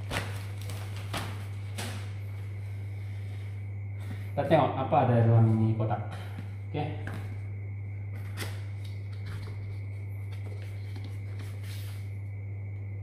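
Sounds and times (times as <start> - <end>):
low hum: 0.0 - 13.0
soft papery slide: 10.4 - 12.1.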